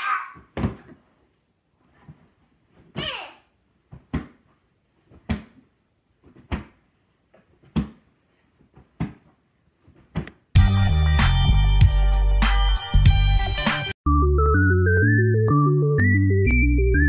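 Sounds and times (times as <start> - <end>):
loud music: 10.6 - 14.3.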